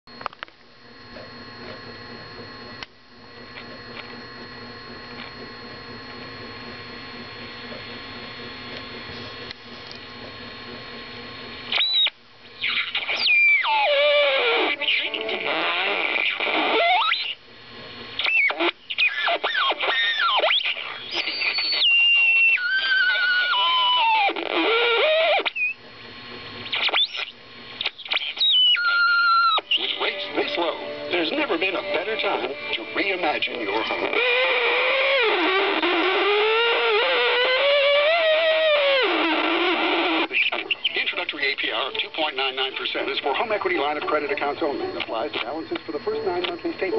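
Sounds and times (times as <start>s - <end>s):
radio static: 0.1s - 46.9s
garbled radio station audio: 0.2s - 46.9s
radio tuning whistles: 10.5s - 17.4s, 18.2s - 46.9s.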